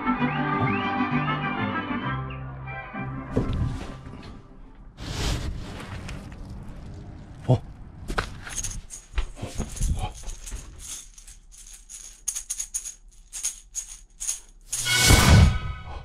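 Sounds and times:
maraca rattling: 8.5 - 15.1.

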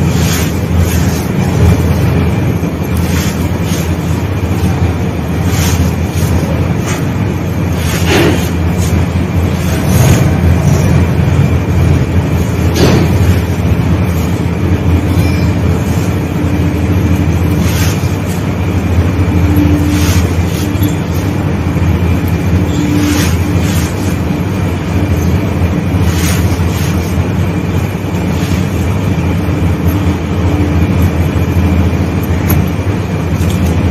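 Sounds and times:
clumps crunching: 0.0 - 33.9
sand mixture grinding on floor: 0.0 - 33.9.

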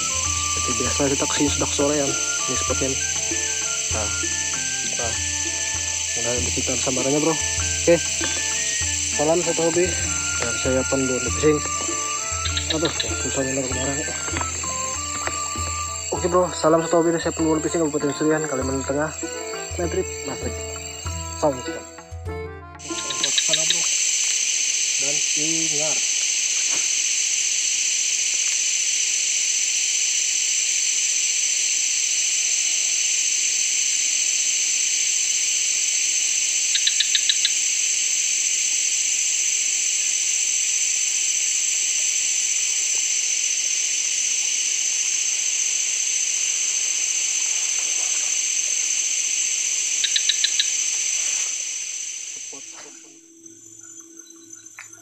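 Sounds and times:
quick chirps: 0.0 - 22.2, 22.8 - 27.5, 36.7 - 37.7, 45.2 - 55.0
shrill insect chorus: 0.0 - 55.0.

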